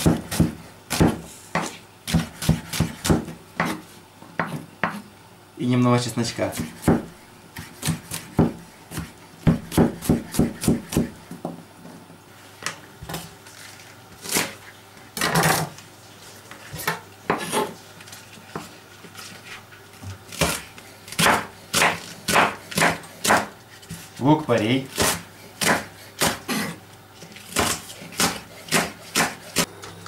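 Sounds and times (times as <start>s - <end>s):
knife chopping on wooden board: 0.0s - 5.0s, 6.4s - 11.4s, 20.3s - 24.0s, 24.9s - 26.7s, 27.5s - 29.7s.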